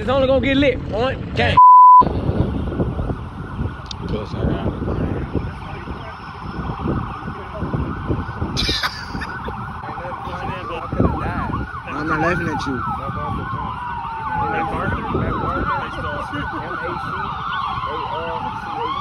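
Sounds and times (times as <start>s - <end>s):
siren wailing: 2.6s - 19.0s
siren yelping: 5.0s - 19.0s.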